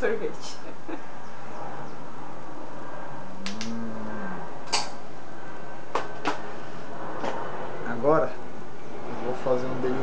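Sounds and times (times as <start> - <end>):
small sharp clicks: 3.4 - 3.8
person humming: 3.4 - 4.4.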